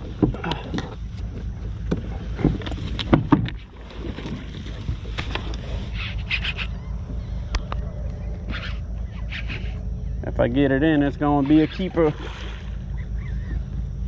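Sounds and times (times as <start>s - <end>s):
knocks and clicks against plastic hull: 0.0s - 5.6s
steady low rumble: 0.0s - 14.0s.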